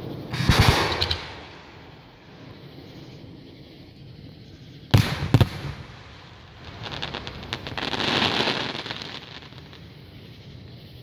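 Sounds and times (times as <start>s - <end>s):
firework shells booming: 0.0s - 2.4s, 4.9s - 10.1s
firework crackling: 0.0s - 11.0s.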